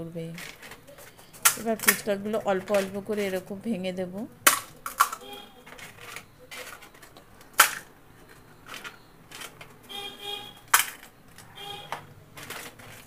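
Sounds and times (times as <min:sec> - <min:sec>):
crisp shells cracking: 0:00.3 - 0:03.5, 0:04.4 - 0:09.8, 0:10.6 - 0:11.5, 0:12.3 - 0:13.0.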